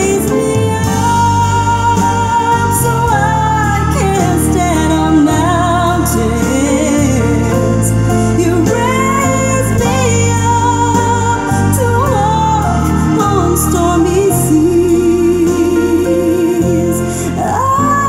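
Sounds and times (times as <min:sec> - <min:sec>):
song over loudspeakers: 0:00.0 - 0:18.0.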